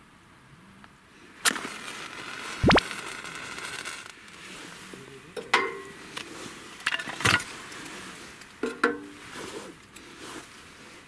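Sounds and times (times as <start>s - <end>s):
wooden sticks knocking on metal grate: 8.6s - 9.1s.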